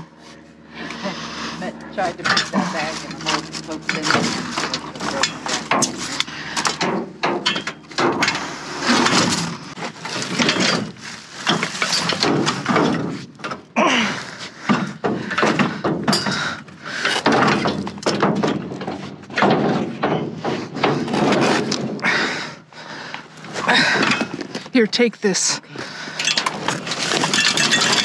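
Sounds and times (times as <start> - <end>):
scraping and rustling: 1.0 - 13.6, 16.7 - 22.0, 26.4 - 28.0
hard objects knocking and clattering: 14.6 - 22.0, 26.2 - 28.0.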